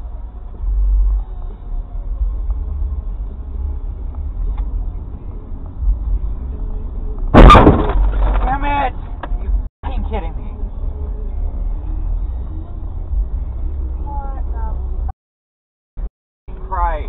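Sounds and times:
low road rumble inside car: 0.0 - 15.1
loud car crash: 7.3 - 8.8.

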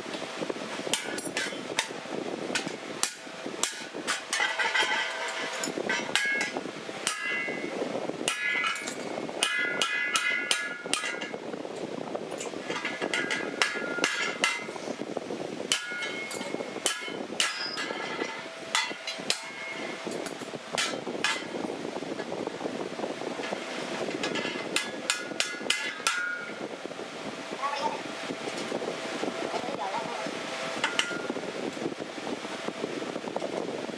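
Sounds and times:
steady rushing noise: 0.0 - 33.9
metal knocks and clinks: 3.8 - 7.6, 8.3 - 11.3, 15.7 - 21.6.

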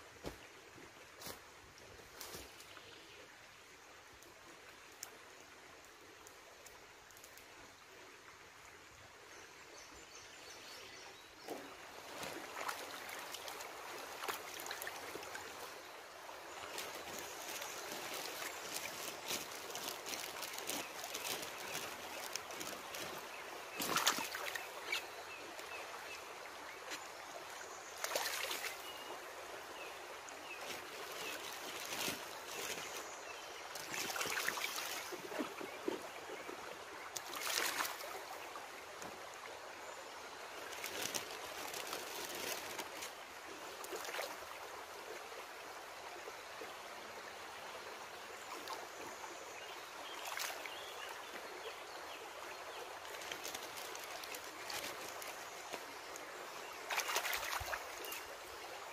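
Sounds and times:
stream running over gravel: 0.0 - 58.9
short water splashes: 11.4 - 15.8, 16.6 - 25.1, 28.0 - 29.1, 33.7 - 36.2, 37.1 - 38.4, 56.6 - 58.3.

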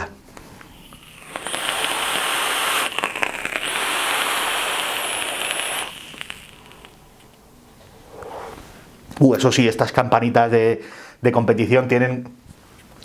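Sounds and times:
air hissing through atomizer: 0.5 - 8.8
liquid sizzling on hot coil: 0.7 - 7.4.

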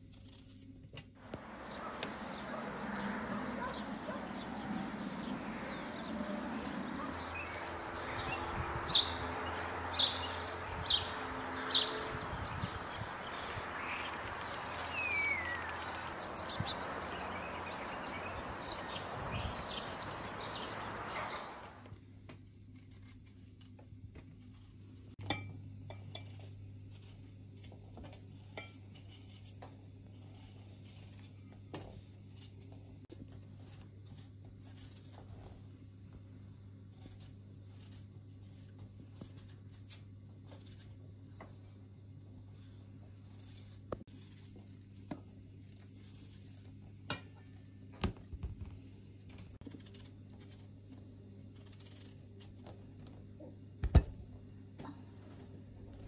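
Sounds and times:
knife clicks and scrapes peeling fruit: 0.0 - 2.2, 22.8 - 24.8
bird chirps and calls: 1.5 - 21.9.

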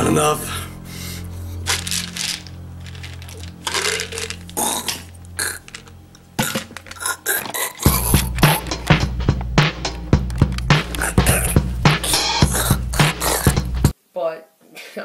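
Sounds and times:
background music drone: 0.0 - 13.9
throaty noise: 0.6 - 13.9
pills rattling in plastic bottle: 1.6 - 9.0, 10.3 - 13.6
music track with a beat: 7.9 - 13.9.

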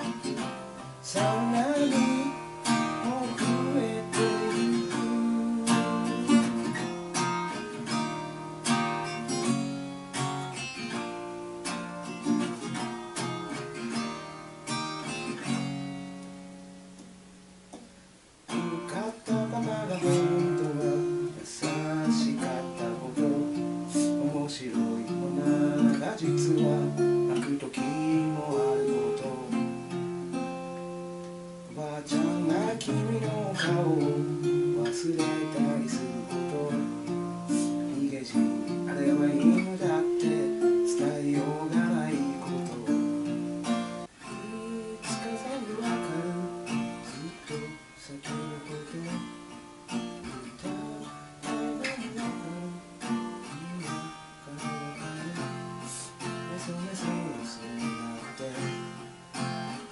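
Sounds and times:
acoustic guitar strummed and picked: 0.0 - 59.9.

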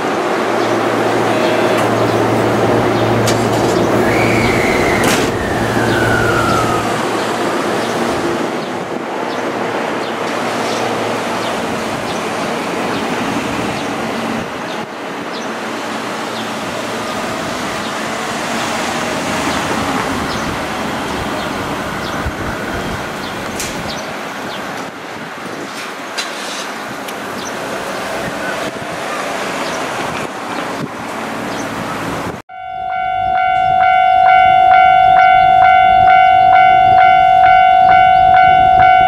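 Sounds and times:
electric train inverter whine: 0.0 - 25.4
train running noise: 0.0 - 39.0.

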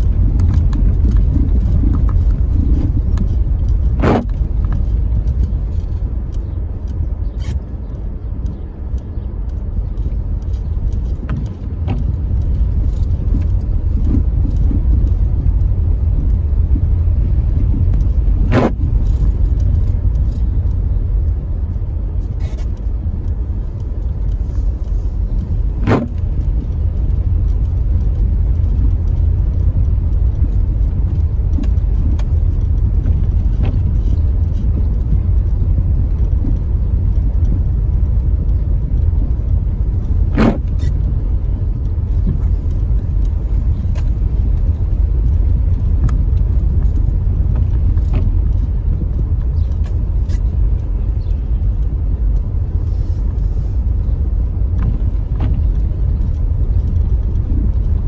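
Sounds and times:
car tyres and engine rumbling: 0.0 - 58.0.

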